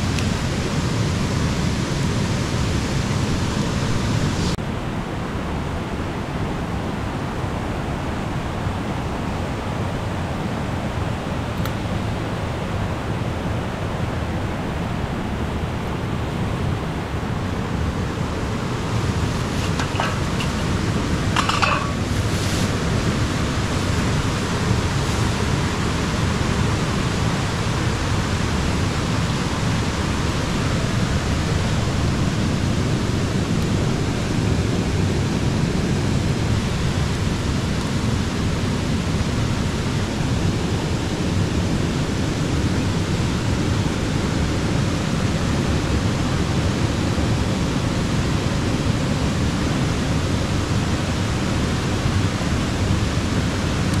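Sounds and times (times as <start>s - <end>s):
water rushing over rocks: 16.4s - 54.0s.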